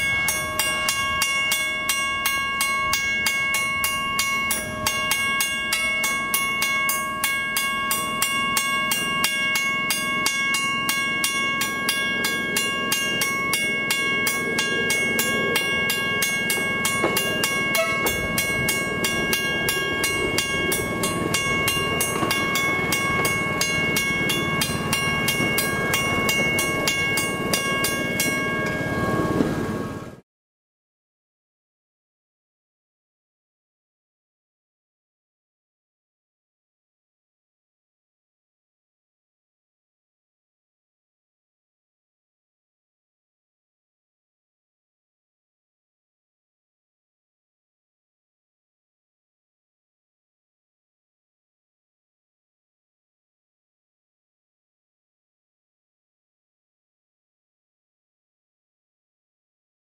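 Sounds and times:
level-crossing bell ringing: 0.0s - 30.1s.

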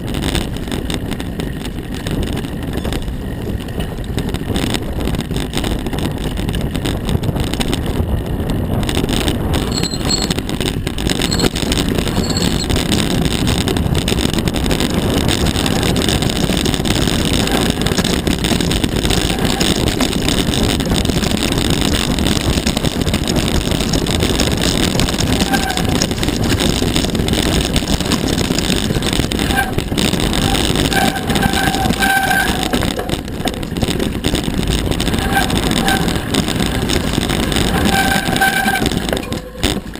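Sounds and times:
bike tyres rattling on stony trail: 0.0s - 39.9s
wind buffeting microphone: 0.0s - 39.9s
high squeaks: 9.6s - 10.5s, 11.2s - 12.8s, 25.3s - 26.0s, 29.4s - 33.2s, 35.0s - 39.8s.

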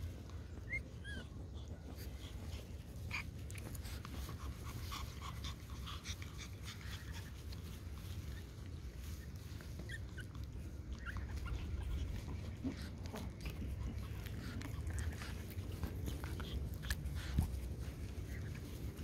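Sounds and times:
dogs sniffing: 0.0s - 19.0s.

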